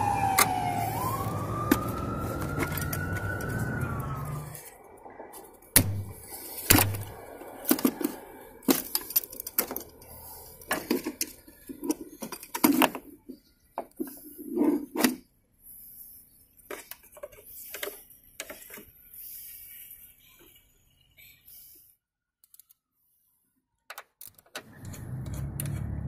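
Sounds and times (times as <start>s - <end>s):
plastic and metal parts clicking: 6.7s - 15.2s, 16.7s - 18.9s, 22.4s - 22.8s, 23.9s - 26.0s.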